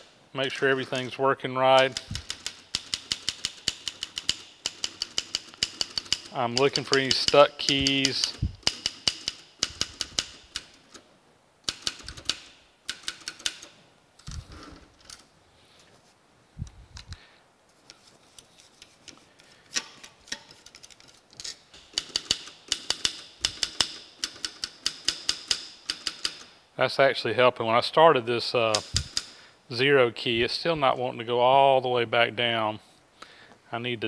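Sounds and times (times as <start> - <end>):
typewriter keys clacking: 1.8 - 10.8, 11.7 - 14.4, 20.7 - 26.4.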